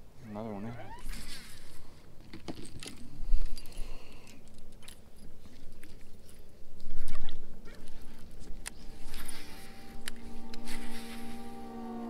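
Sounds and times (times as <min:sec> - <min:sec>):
fishing tackle clicks and rattles: 0:02.2 - 0:07.2.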